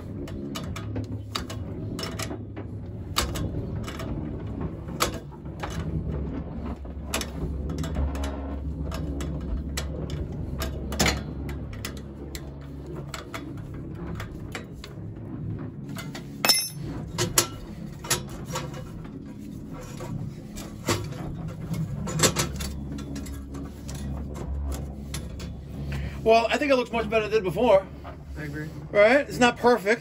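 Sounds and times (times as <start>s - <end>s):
steady low hum: 0.0s - 30.0s
sharp metal clink and ring: 16.4s - 16.8s.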